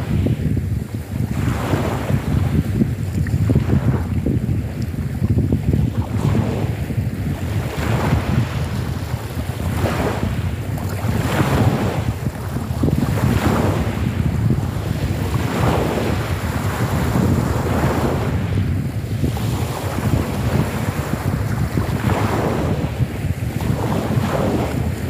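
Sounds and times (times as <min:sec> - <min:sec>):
wind rumble on microphone: 0:00.0 - 0:25.0
waves washing onto pebble shore: 0:06.1 - 0:25.0.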